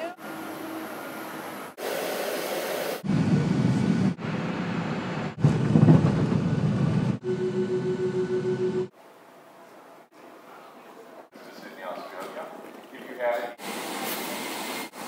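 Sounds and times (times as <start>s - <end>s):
plane rumbling along runway: 3.0s - 8.9s.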